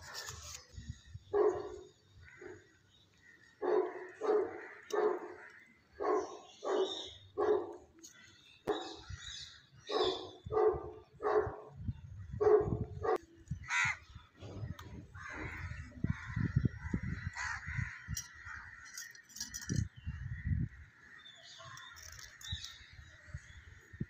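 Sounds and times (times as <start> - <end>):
crows cawing: 13.6 - 14.0, 15.1 - 19.1.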